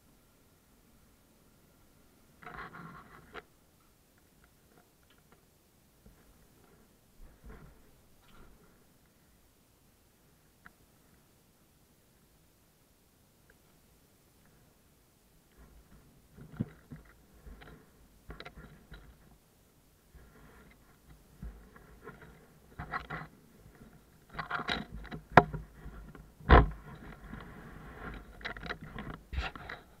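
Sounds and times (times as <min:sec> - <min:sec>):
rustling and scraping on scooter: 0:02.4 - 0:03.5, 0:06.0 - 0:08.9, 0:15.5 - 0:19.4, 0:20.0 - 0:30.0.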